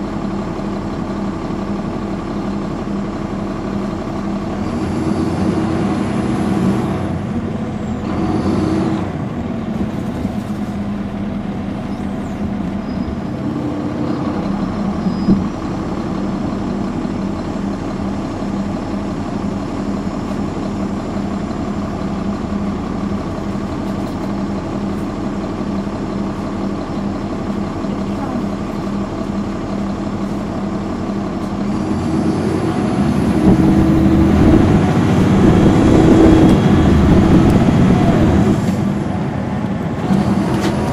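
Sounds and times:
bus diesel engine running: 0.0 - 40.9
thump: 15.3 - 15.5
high whine: 33.2 - 38.7.

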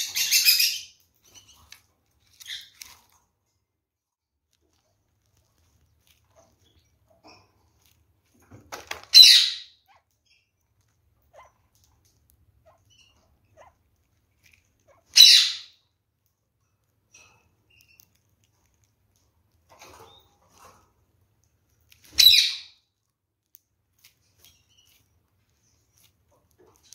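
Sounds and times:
bird pecking seeds: 1.1 - 3.3, 4.3 - 9.1.

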